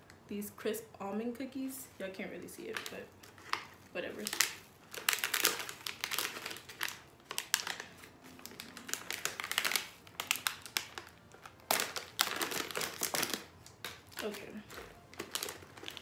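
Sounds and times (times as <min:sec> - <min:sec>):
wrapper crinkling and tearing: 0:02.6 - 0:16.0.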